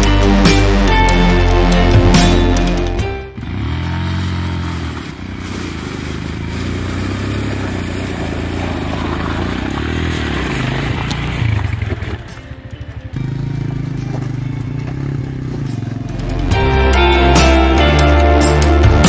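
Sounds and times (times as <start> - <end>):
motorcycle engine revving: 1.8 - 17.8
stones crunching under tyres: 3.5 - 16.5.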